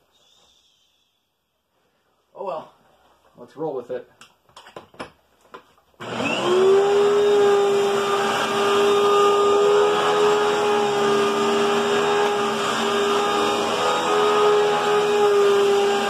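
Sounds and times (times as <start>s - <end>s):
vacuum cleaner motor whining: 6.0s - 16.0s.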